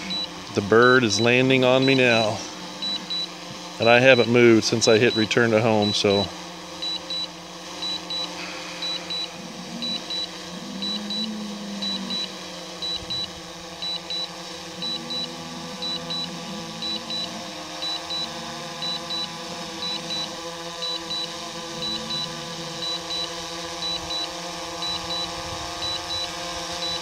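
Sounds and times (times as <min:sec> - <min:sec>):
steady low hum: 0:00.0 - 0:27.0
remote controller double beeps: 0:06.8 - 0:27.0.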